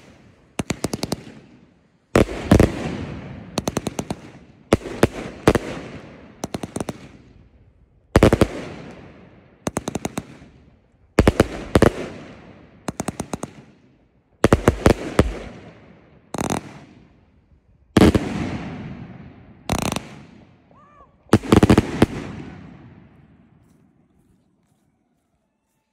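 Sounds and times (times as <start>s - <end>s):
fireworks banging: 18.0s - 20.6s.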